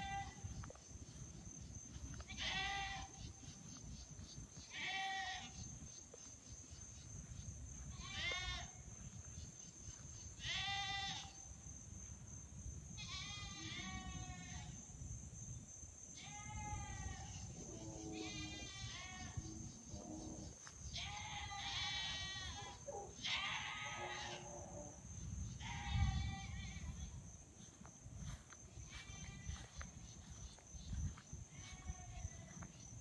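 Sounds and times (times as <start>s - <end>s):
goats bleating loudly: 21.0s - 24.5s.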